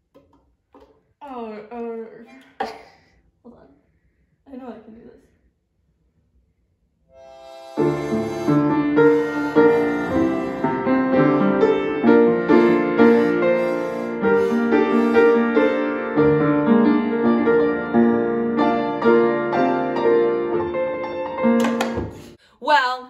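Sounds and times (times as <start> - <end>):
upright piano playing: 7.2 - 22.3.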